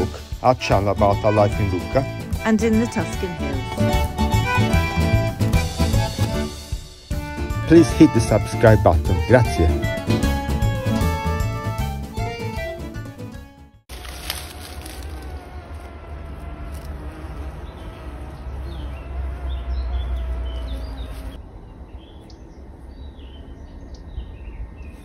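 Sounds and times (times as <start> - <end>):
insect buzz: 13.9 - 21.4
small birds chirping: 16.7 - 25.0.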